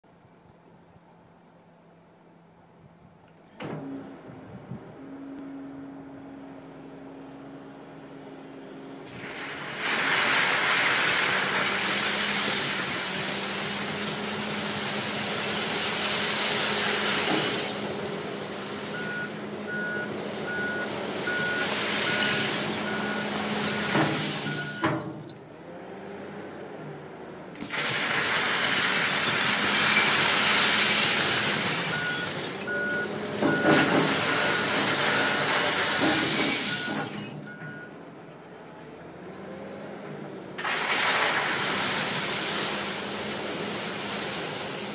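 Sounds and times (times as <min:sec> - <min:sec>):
wheel loader diesel engine: 0:00.1 - 0:44.9
reversing alarm beeps: 0:18.9 - 0:25.0, 0:31.9 - 0:35.6, 0:36.6 - 0:38.0.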